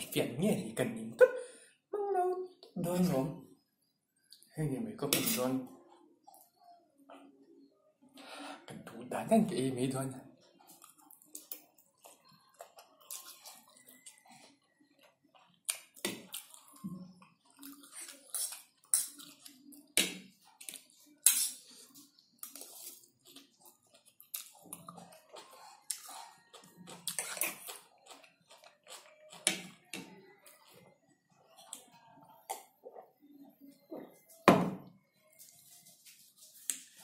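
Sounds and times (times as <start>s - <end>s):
man slurping and chewing noodles: 10.4s - 32.6s.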